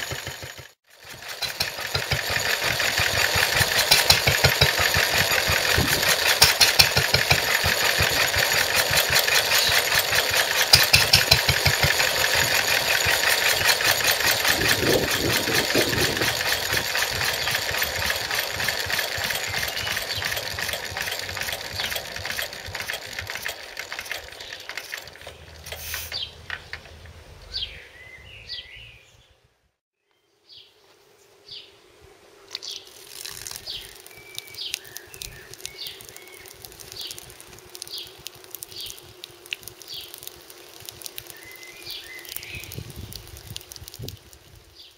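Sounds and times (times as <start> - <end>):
stationary engine running: 0.0 - 27.8
birds chirping: 12.8 - 29.5, 33.5 - 39.1, 41.2 - 42.9.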